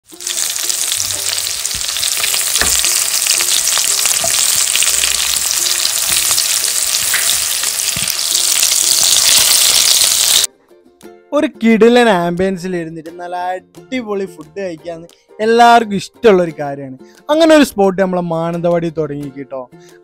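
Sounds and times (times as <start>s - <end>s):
sizzling on hot metal plate: 0.0s - 10.5s.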